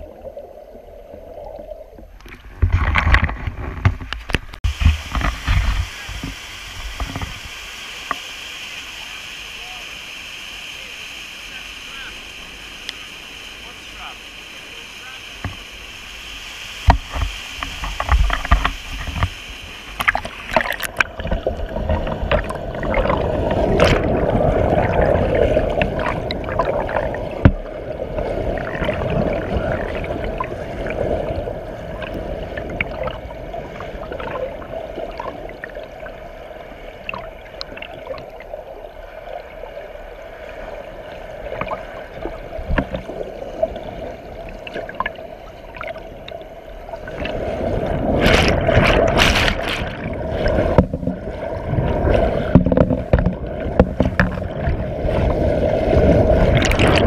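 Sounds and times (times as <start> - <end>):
muffled underwater churning: 0.0 - 57.0
waterfall rushing: 4.7 - 28.0.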